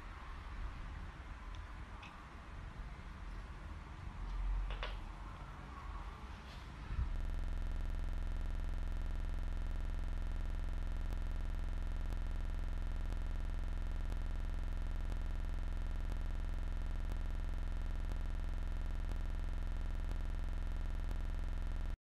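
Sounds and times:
low buzzy electrical hum: 0.0 - 22.0
faint ticks: 7.7 - 21.9.

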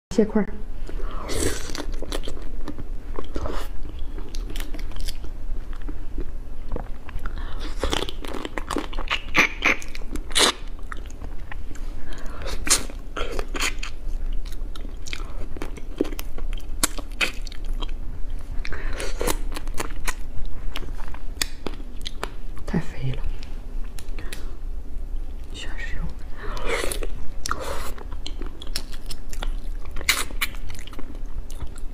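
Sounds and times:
wet chewing and sucking: 0.9 - 22.7, 26.4 - 31.9.

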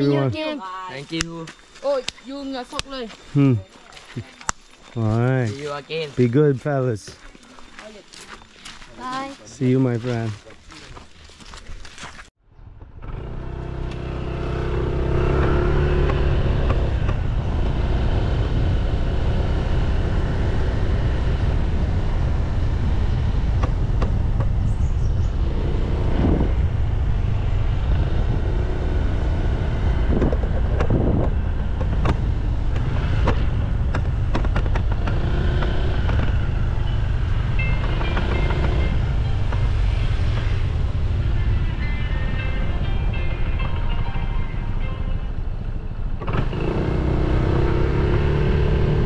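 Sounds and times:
motorcycle engine running: 12.8 - 44.0
wind rushing across microphone: 14.4 - 49.0.

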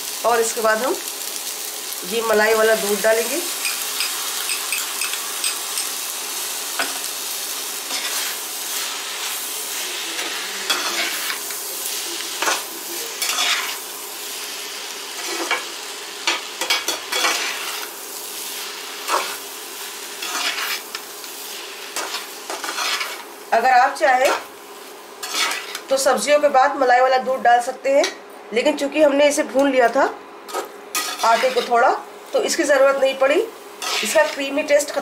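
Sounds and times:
food sizzling in pan: 0.0 - 27.1, 29.8 - 35.0
metal spoon scraping pan: 25.2 - 25.8, 30.5 - 31.8, 33.8 - 34.5.

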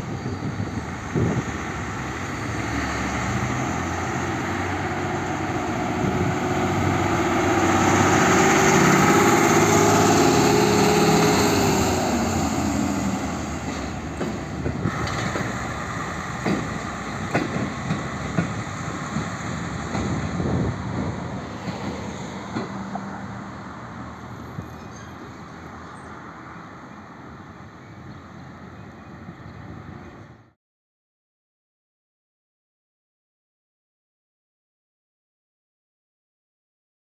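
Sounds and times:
railcar diesel engine running: 0.0 - 30.5
wheels clicking on track: 13.2 - 20.6.

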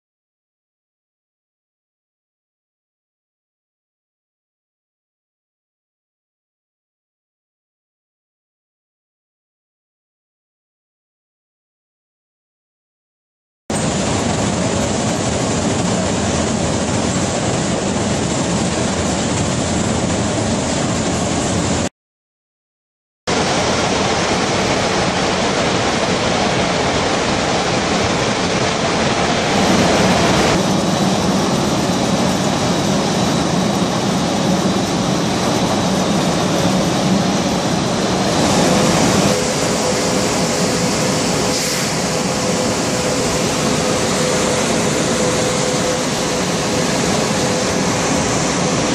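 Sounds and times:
conveyor and machinery running: 13.7 - 21.9, 23.3 - 48.9
steady hum: 23.3 - 48.9.

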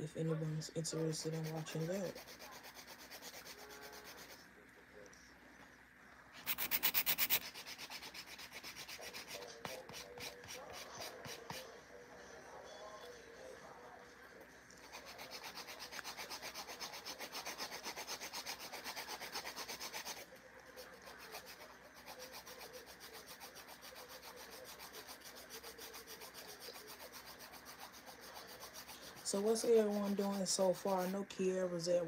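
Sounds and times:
nail file scraping nails: 1.1 - 4.4, 6.4 - 11.6, 14.8 - 31.2.

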